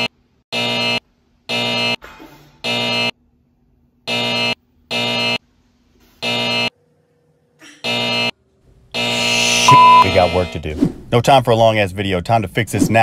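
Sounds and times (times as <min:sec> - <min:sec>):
wrong-answer buzzer: 0:00.0 - 0:02.0, 0:02.6 - 0:03.2, 0:04.1 - 0:05.4, 0:06.2 - 0:06.7, 0:07.8 - 0:08.4, 0:09.0 - 0:10.6.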